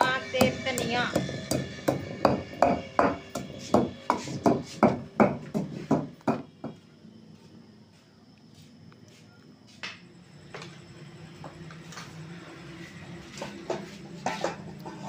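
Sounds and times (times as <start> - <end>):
pestle pounding in stone mortar: 0.4 - 6.5.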